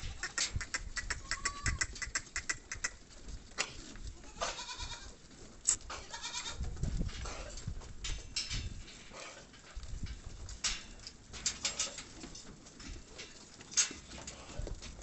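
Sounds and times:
goats bleating: 0:00.0 - 0:03.0, 0:04.1 - 0:05.2, 0:05.9 - 0:06.6.

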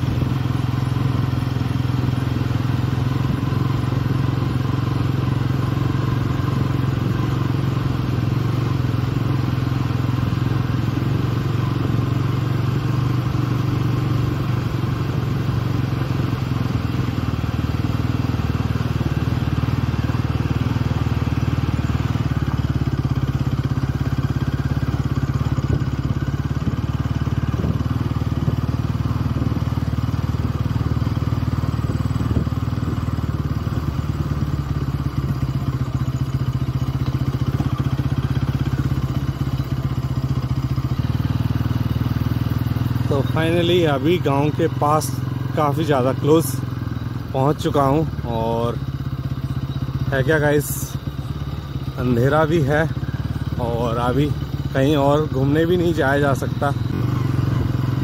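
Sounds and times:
motorcycle engine droning: 0:00.0 - 0:58.0.

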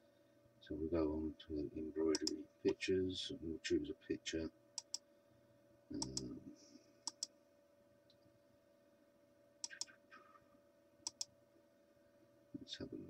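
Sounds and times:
faint steady hum: 0:00.0 - 0:13.0
computer mouse clicking: 0:02.1 - 0:02.4, 0:04.8 - 0:05.0, 0:06.0 - 0:06.3, 0:07.0 - 0:07.3, 0:09.6 - 0:10.0, 0:11.0 - 0:11.3.

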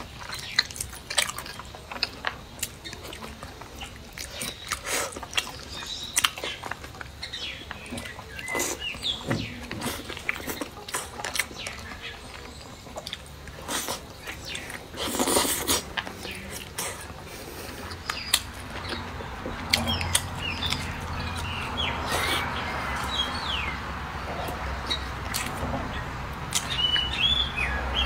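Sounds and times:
wet chewing and lip smacks: 0:00.0 - 0:23.2, 0:24.4 - 0:25.6, 0:26.4 - 0:27.2
bird chirps: 0:03.8 - 0:14.8, 0:17.9 - 0:28.0.

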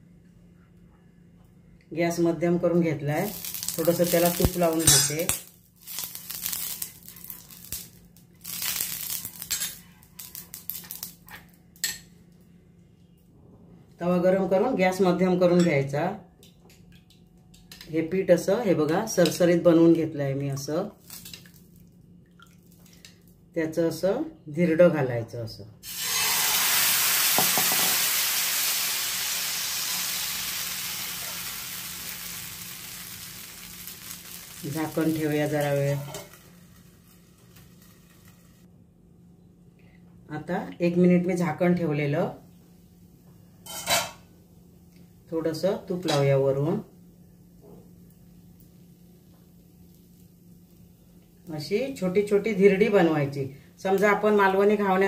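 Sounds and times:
ghee sizzling on a hot pan: 0:03.1 - 0:11.2, 0:25.8 - 0:38.7, 0:47.3 - 0:53.0.

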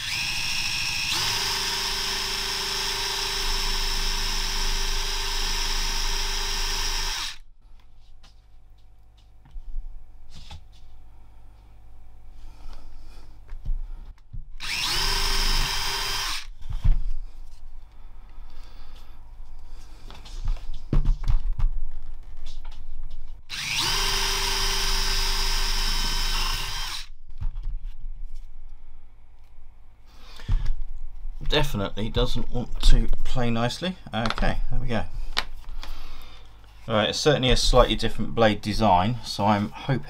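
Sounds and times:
electric drill cutting plastic: 0:00.0 - 0:07.4, 0:14.6 - 0:16.5, 0:23.5 - 0:27.1.

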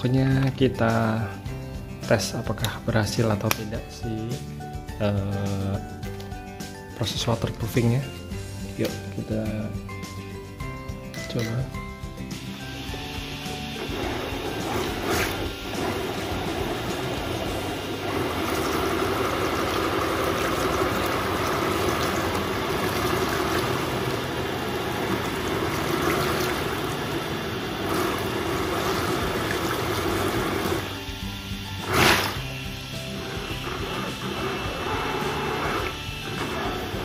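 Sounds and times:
toy car wheels churning water: 0:13.8 - 0:31.0, 0:31.8 - 0:32.5.

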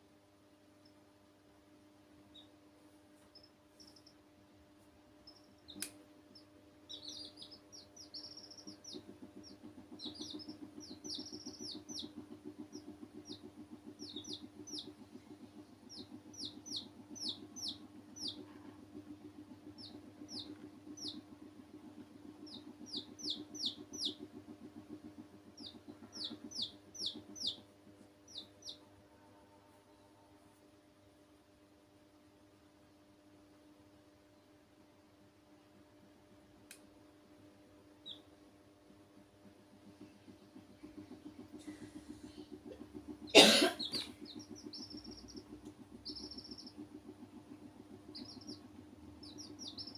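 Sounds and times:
steady low hum: 0:00.0 - 0:49.9
baby chicks peeping: 0:02.3 - 0:02.6, 0:03.2 - 0:04.2, 0:05.2 - 0:28.9, 0:37.9 - 0:38.4, 0:39.8 - 0:49.9.

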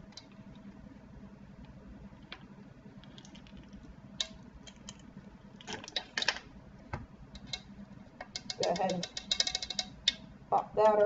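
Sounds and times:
utensils tapping wire-mesh sifter: 0:08.3 - 0:10.2.

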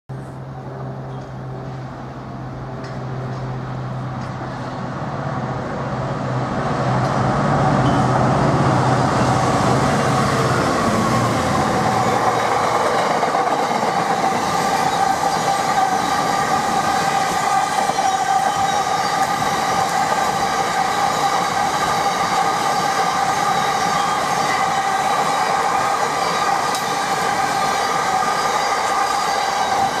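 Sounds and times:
diesel locomotive engine hum: 0:00.1 - 0:30.0
high squeal from train wheels: 0:07.6 - 0:30.0.

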